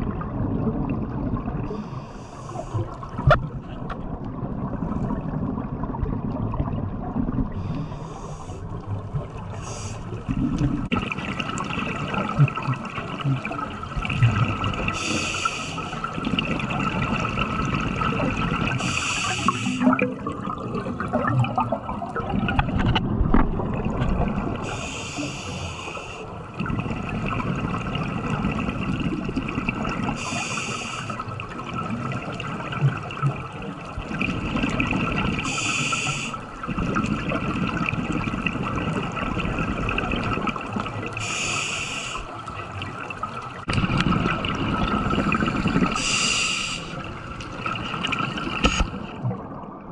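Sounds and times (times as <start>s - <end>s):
exhaled bubbles rumbling: 0.0s - 24.9s, 26.3s - 49.9s
regulator inhalation hiss: 7.6s - 8.6s, 15.0s - 16.0s, 18.8s - 19.8s, 24.7s - 26.2s, 30.2s - 31.2s, 35.5s - 36.4s, 41.2s - 42.3s, 46.0s - 47.0s.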